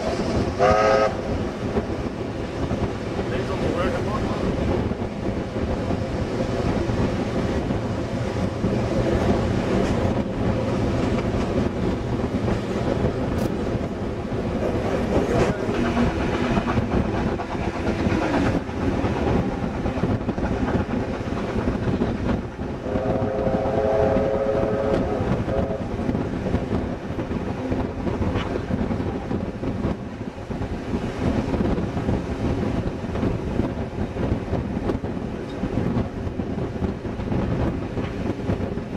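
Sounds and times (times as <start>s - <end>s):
train wheels rumbling on rail: 0.0s - 38.9s
wheels clicking over rail joints: 1.3s - 22.7s.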